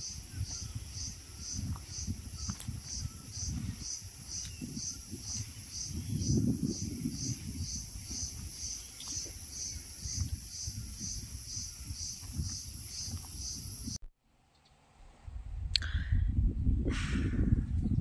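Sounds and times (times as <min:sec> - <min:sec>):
high-pitched insect song: 0:00.0 - 0:14.0.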